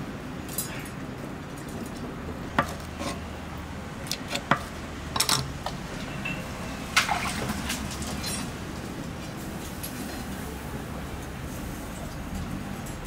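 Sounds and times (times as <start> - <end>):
low kitchen hum: 0.0 - 13.0
metal kitchenware clinking: 5.2 - 7.3.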